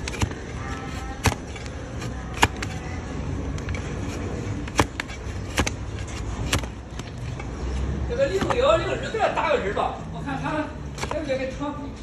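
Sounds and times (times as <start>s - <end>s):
blade knocking on wooden block: 4.6s - 7.2s.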